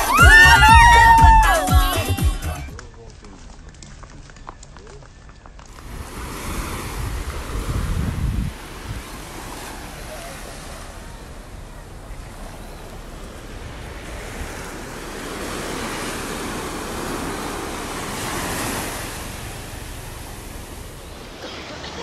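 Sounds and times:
ocean waves breaking on beach: 5.7 - 22.0.

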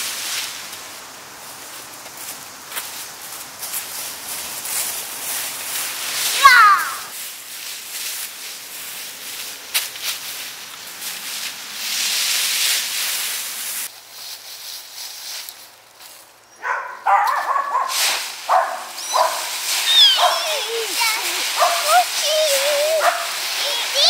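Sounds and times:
rakes scraping dry leaves: 0.0 - 24.0
high-pitched cries: 6.4 - 7.1, 18.9 - 24.0.

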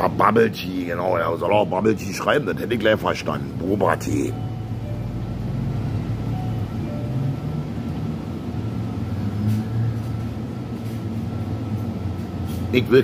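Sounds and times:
faint background music: 0.0 - 8.2
steady low hum: 0.0 - 13.0.

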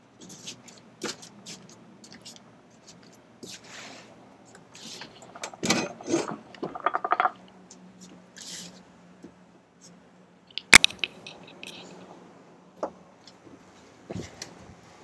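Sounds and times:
rustling and scraping: 0.2 - 7.4, 10.8 - 12.2.

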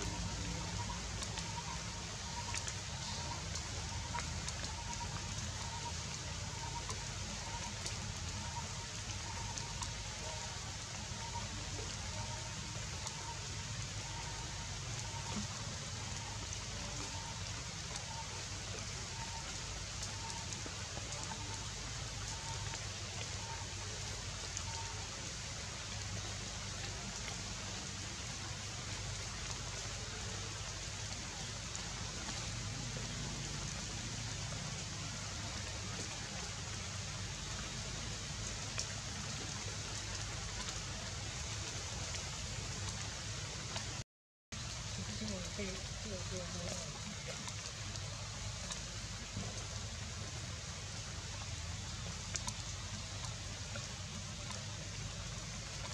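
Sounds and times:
outdoor background hiss: 0.0 - 44.0.

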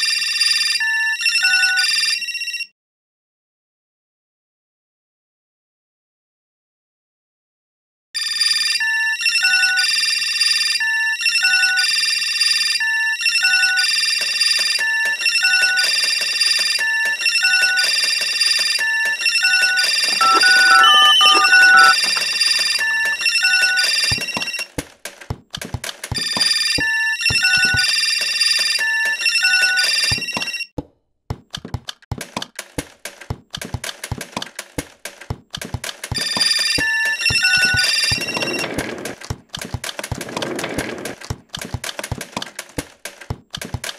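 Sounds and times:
electronic telephone ringing: 19.5 - 24.6.

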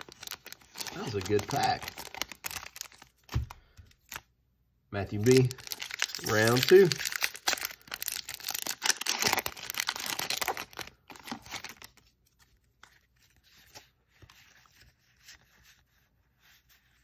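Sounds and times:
foil wrapper tearing and crinkling: 0.0 - 3.4, 5.2 - 12.0
cards rustling: 0.0 - 4.3, 5.1 - 17.0.

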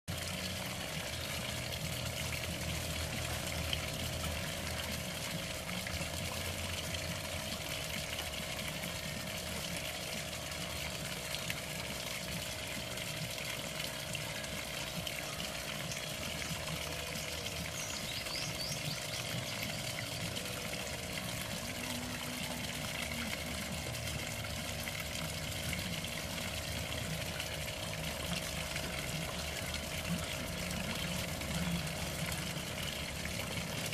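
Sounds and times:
faint steady hum: 0.1 - 33.9
fountain splashing onto water: 0.1 - 33.9.

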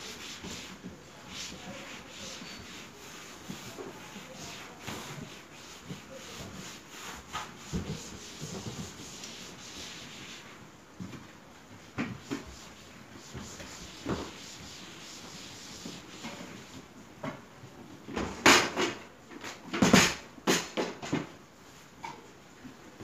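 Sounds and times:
cloth scrubbing wooden panelling: 0.0 - 10.6, 12.1 - 16.9.

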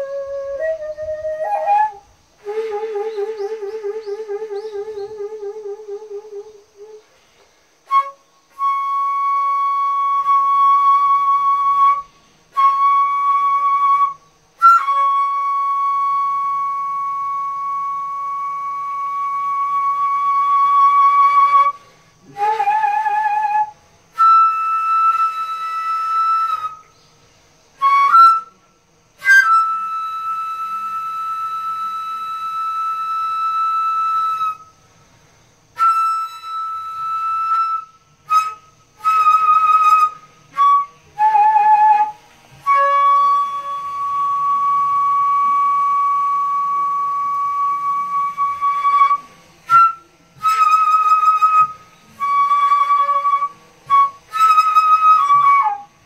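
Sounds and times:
bamboo flute slow melody: 0.0 - 56.0
flute player breathing: 21.7 - 22.4.

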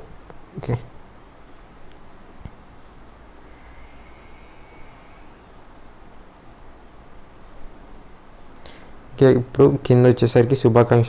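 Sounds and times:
low hum and hiss: 0.0 - 11.0
high-pitched chirping trill: 2.5 - 7.6.

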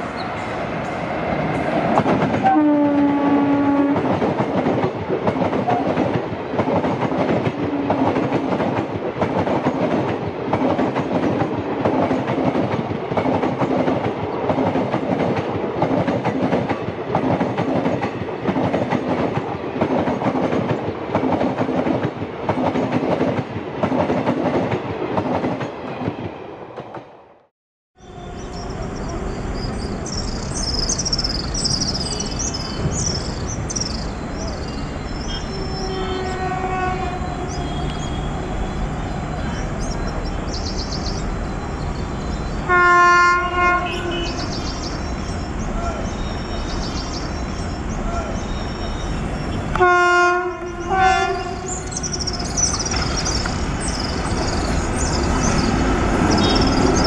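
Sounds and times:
train horn blast: 2.4 - 4.1, 35.3 - 38.4, 42.7 - 44.5, 49.7 - 51.8.

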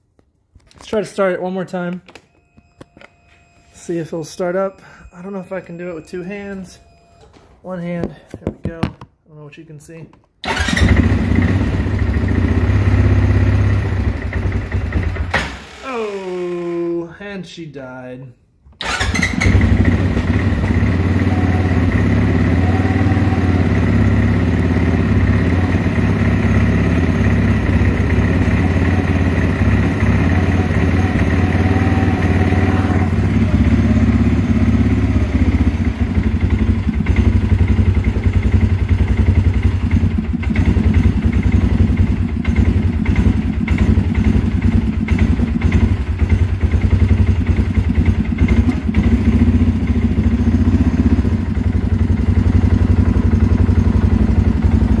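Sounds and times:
atv engine idling: 18.8 - 55.0.

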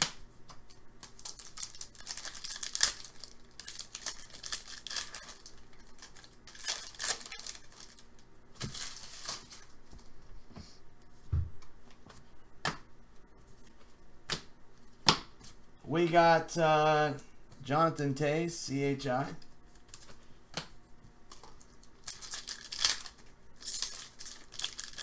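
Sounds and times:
foil wrapper crinkling and tearing: 1.0 - 9.8, 21.3 - 25.0.

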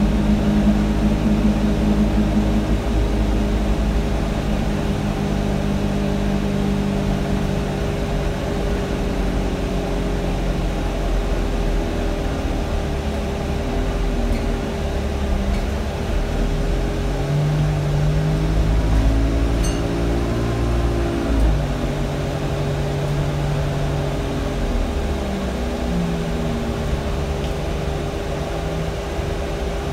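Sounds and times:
bus diesel engine droning: 0.0 - 29.9
cooling fan whine: 0.0 - 29.9.

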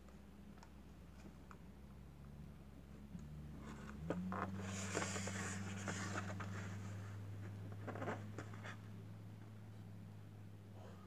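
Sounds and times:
cardboard and plastic rustling: 4.0 - 8.8.

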